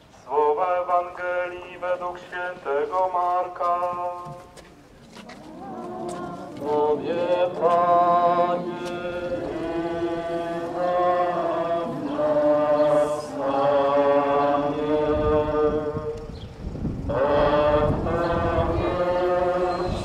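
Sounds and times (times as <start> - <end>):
slow chant singing: 0.2 - 4.5, 5.1 - 20.0.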